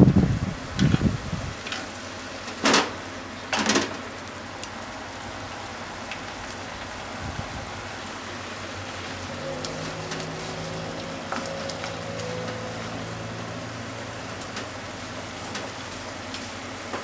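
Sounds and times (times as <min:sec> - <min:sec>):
food sizzling in a frying pan: 0:01.5 - 0:17.0.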